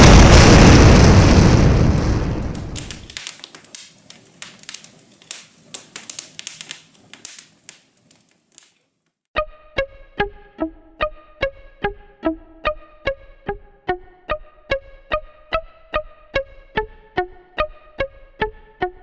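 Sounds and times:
explosion rumbling: 0.0 - 3.2
crackle of small pops: 0.0 - 9.2.

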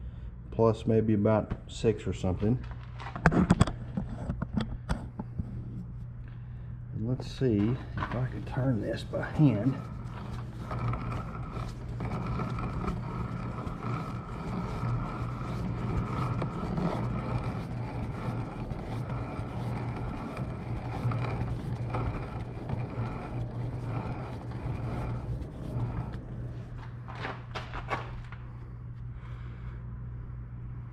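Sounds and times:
metal lathe motor hum: 7.4 - 27.1.

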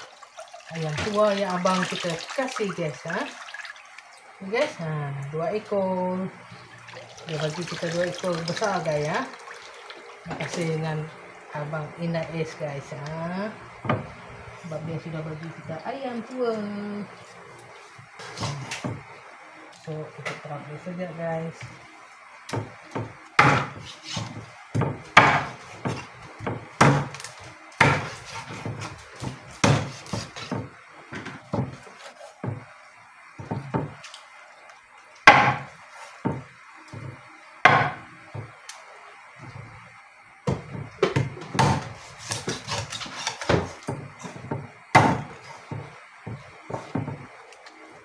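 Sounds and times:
cleaver chopping on wooden board: 22.5 - 27.2, 27.8 - 30.7, 35.3 - 36.4, 37.7 - 38.5, 40.5 - 47.2.

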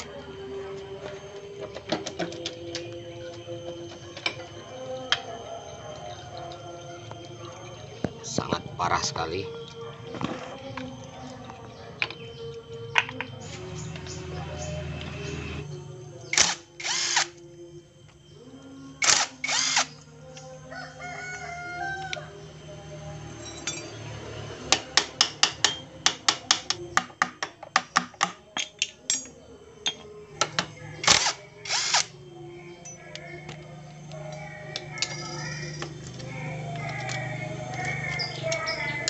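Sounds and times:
power driver spinning bolts: 16.3 - 17.4, 19.0 - 20.0, 31.0 - 32.1.

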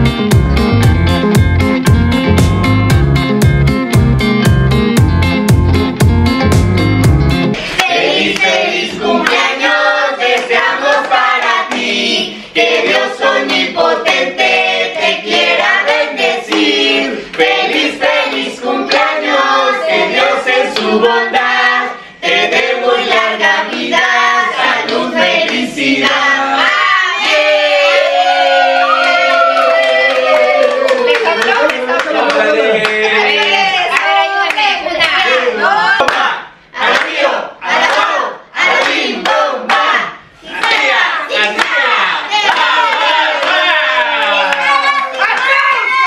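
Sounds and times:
family singing together: 7.6 - 29.5, 30.2 - 46.0
people clapping in time: 28.9 - 35.2, 36.0 - 36.3, 40.6 - 46.0.

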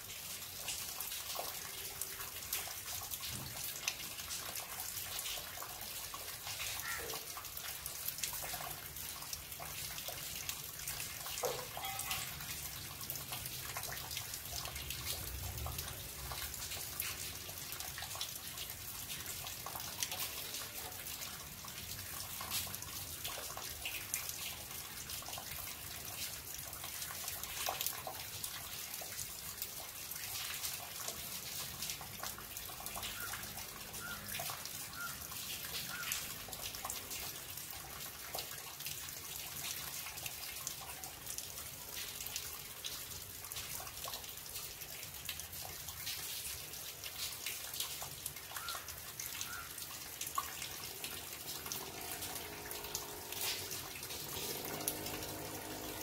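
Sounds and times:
light rain: 0.0 - 56.0
rainwater splashing onto wet ground: 0.0 - 56.0
water dripping: 0.0 - 56.0.

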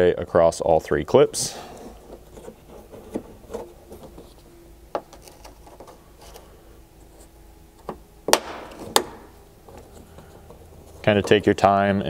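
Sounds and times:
faint steady hum: 0.0 - 12.0
plastic rubbing and handling: 1.6 - 8.0, 8.7 - 11.8.

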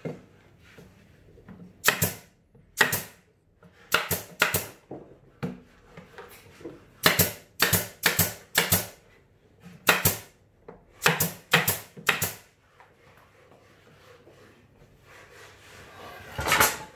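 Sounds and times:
nail gun shots: 1.8 - 3.2, 7.1 - 8.9, 9.9 - 10.2, 11.0 - 12.4.

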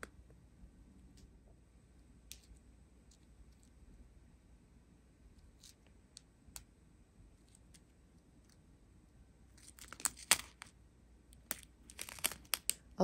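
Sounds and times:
plastic bags crinkling: 11.8 - 12.8.

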